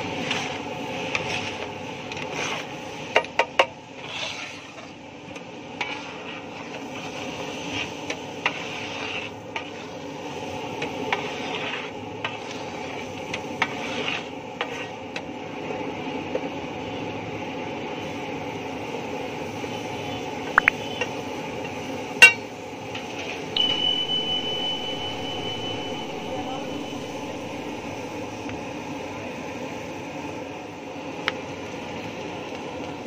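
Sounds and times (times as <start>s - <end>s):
steady high tone: 23.6s - 29.1s
steady background noise: 23.6s - 29.2s.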